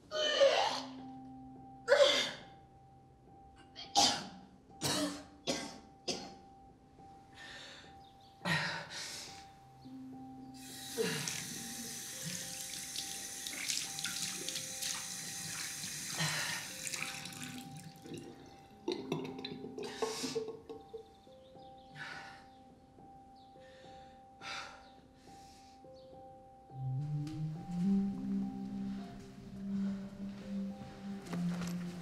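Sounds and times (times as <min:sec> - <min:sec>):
low music tone: 0:00.0 - 0:32.0
sink tap running: 0:10.6 - 0:18.2.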